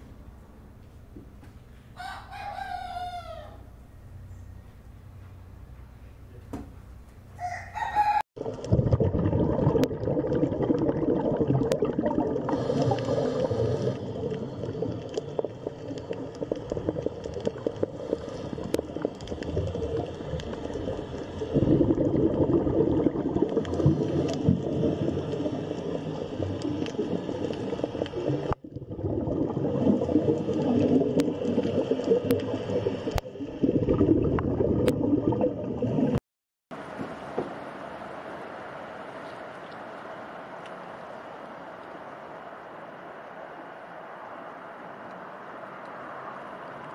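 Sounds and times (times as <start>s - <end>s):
water bubbling and gurgling: 8.4s - 36.2s
crackle of small pops: 13.9s - 33.4s.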